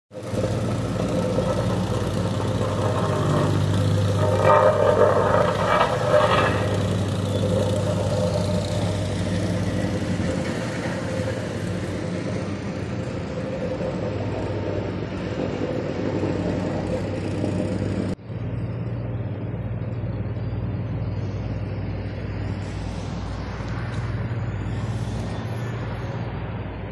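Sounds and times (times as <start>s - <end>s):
diesel machinery humming: 0.1s - 26.9s
machinery clattering: 0.2s - 18.2s.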